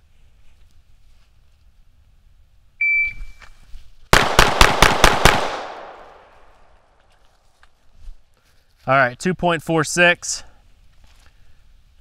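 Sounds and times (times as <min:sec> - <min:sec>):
shot timer beep: 0:02.8 - 0:03.4
handgun shots: 0:04.2 - 0:06.3.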